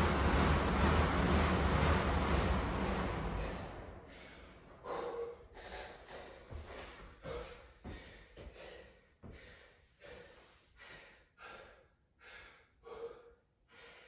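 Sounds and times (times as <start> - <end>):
man breathing hard: 3.4 - 14.0.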